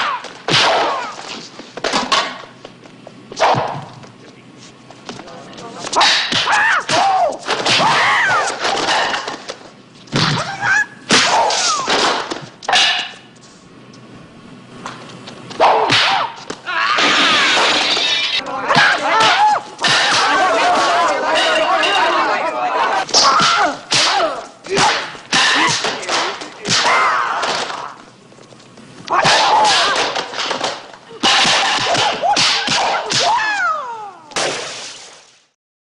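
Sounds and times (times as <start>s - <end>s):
punch and kick impacts: 0.0s - 1.2s, 15.6s - 16.4s
shouted fighting cries: 6.0s - 8.6s, 15.6s - 26.0s, 26.6s - 28.0s, 29.1s - 30.2s, 31.8s - 34.4s
wooden staff hits: 15.6s - 16.4s, 23.1s - 27.8s, 29.1s - 33.4s
man wailing battle cries: 33.2s - 34.4s.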